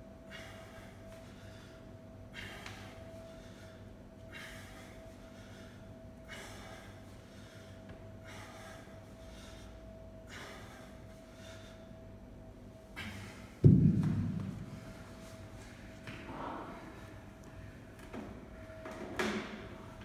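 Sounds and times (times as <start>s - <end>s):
faint steady hum: 0.0s - 20.0s
man breathing hard: 0.2s - 12.1s, 12.9s - 13.6s.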